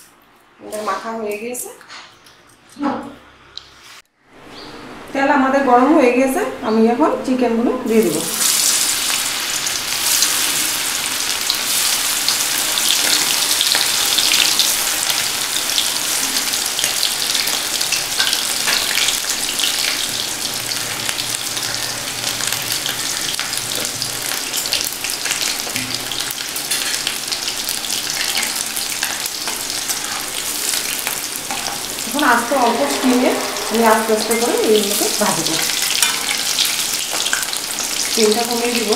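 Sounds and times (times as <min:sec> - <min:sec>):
batter pieces deep-frying in oil: 0:07.9 - 0:32.9, 0:34.6 - 0:38.9.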